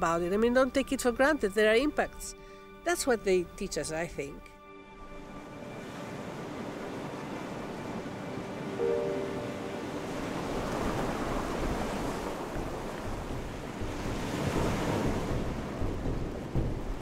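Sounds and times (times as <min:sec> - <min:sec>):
sea waves washing ashore: 0:05.2 - 0:17.0
wind on microphone: 0:09.2 - 0:17.0.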